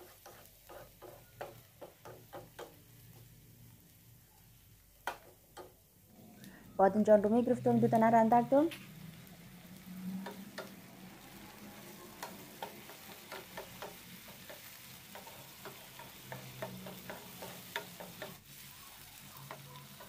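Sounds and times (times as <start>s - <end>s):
wooden spatula scraping pan: 0.0s - 2.5s
vegetables sizzling in oil: 0.0s - 20.0s.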